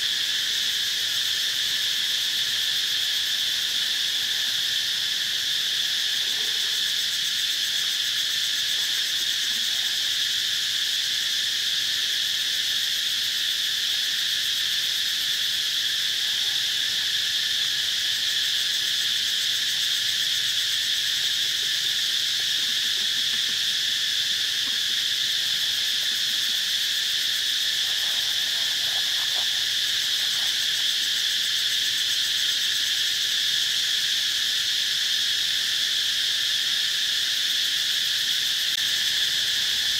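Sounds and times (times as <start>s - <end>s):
high-pitched insect chorus: 0.0s - 39.9s.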